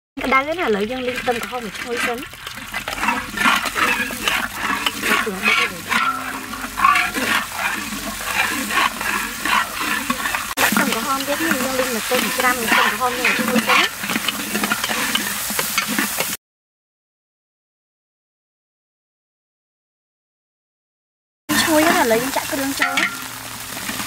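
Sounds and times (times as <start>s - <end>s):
metal spatula scraping pan: 0.2s - 16.4s, 21.5s - 24.0s
oil sizzling in a wok: 0.2s - 16.4s, 21.5s - 24.0s.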